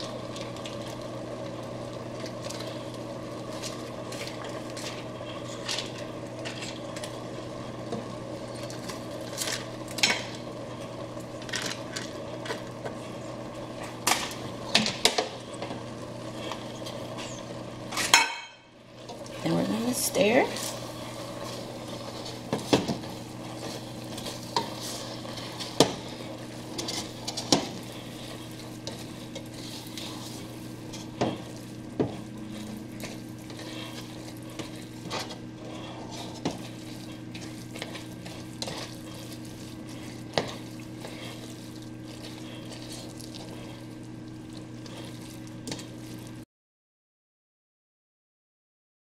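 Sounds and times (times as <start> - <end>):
steady low hum and hiss: 0.0 - 46.4
spoon stirring food in pot: 19.0 - 46.3.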